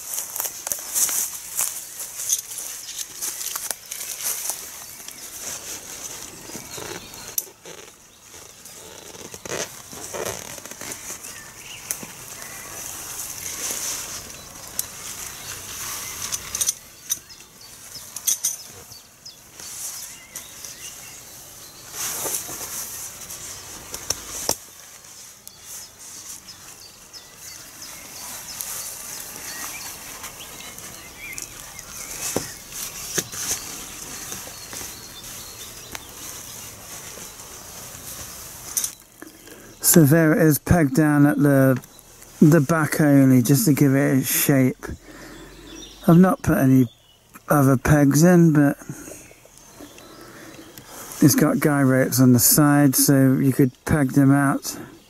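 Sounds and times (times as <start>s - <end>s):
tent pegs clicking and knocking: 0.0s - 18.9s, 22.0s - 24.8s, 37.0s - 40.1s
tent fabric rustling: 0.0s - 46.4s, 47.1s - 53.2s.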